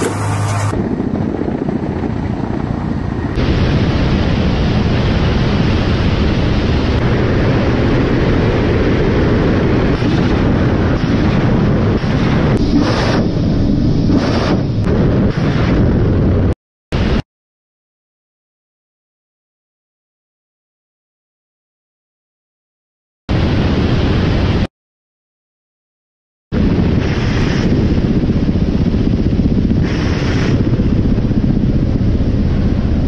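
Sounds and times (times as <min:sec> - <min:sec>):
helicopter wind and engine rush: 0:00.0 - 0:17.2, 0:23.3 - 0:24.7, 0:26.5 - 0:33.0
rockets whooshing: 0:03.3 - 0:17.2, 0:26.6 - 0:31.2.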